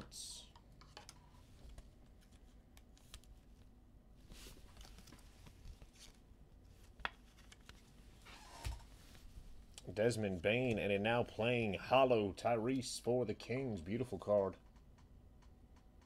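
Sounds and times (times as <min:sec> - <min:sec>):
trading cards rustling and clicking: 0:04.4 - 0:08.9.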